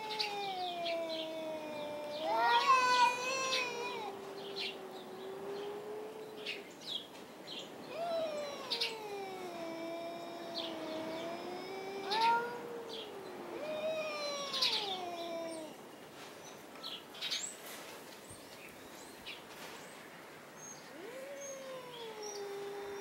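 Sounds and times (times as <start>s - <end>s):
cats yowling: 0.0s - 6.8s, 7.7s - 15.9s, 20.8s - 23.0s.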